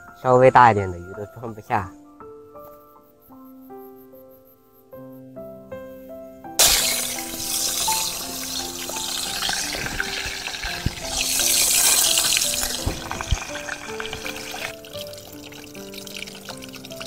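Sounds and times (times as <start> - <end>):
gentle background music: 0.0 - 17.0
fish sizzling in hot oil: 6.6 - 17.0.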